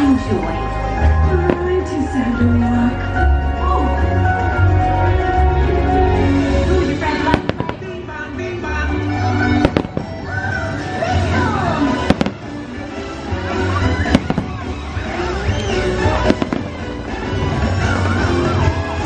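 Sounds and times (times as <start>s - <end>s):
music over loudspeakers: 0.0s - 19.0s
fireworks bangs: 7.1s - 19.0s.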